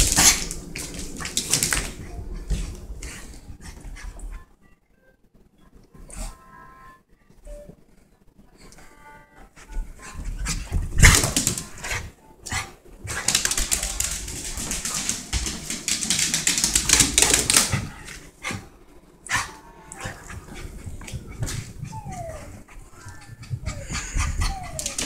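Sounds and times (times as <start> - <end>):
dog sounds: 19.3 - 25.0.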